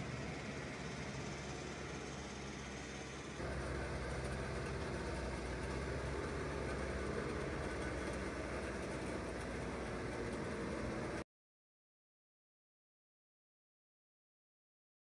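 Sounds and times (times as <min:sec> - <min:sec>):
diesel engine running: 0:00.0 - 0:11.2.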